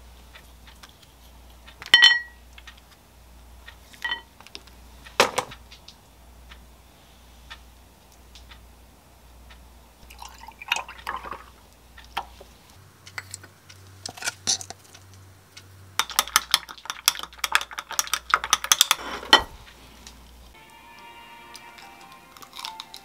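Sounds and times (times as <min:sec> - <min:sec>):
stirring stick clinking against glass: 0:02.0 - 0:02.4, 0:04.0 - 0:04.3, 0:16.0 - 0:19.5.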